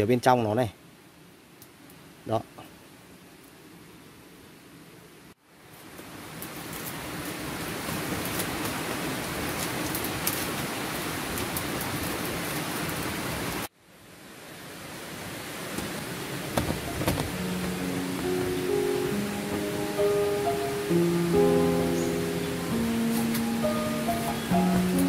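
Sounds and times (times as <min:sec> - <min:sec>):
wood fire crackling: 0:05.6 - 0:13.7, 0:15.5 - 0:25.0
guitar music: 0:17.2 - 0:25.0.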